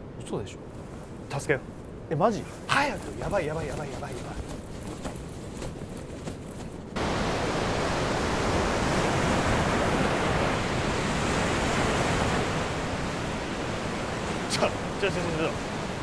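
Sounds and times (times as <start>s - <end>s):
ocean surf breaking on beach: 7.0s - 16.0s.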